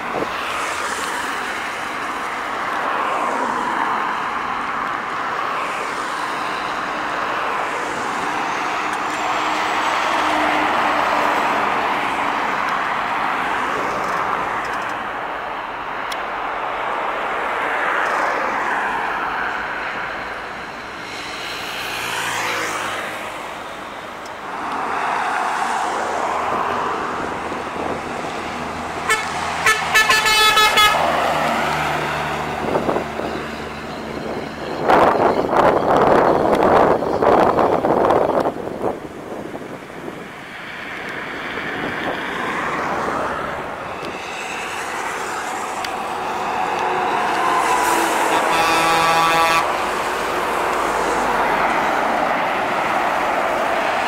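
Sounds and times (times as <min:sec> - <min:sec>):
heavy trucks passing: 0:00.0 - 0:54.0
short vehicle horn toots: 0:29.1 - 0:31.0, 0:48.2 - 0:49.7.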